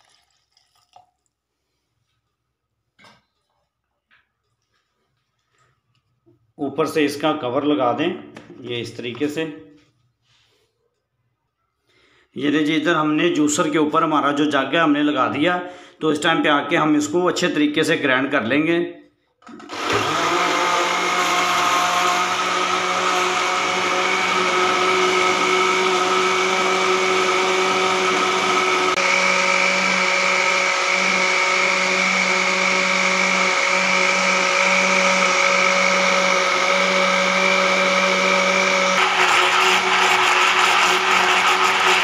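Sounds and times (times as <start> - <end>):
blender motor whining: 19.5 - 42.0.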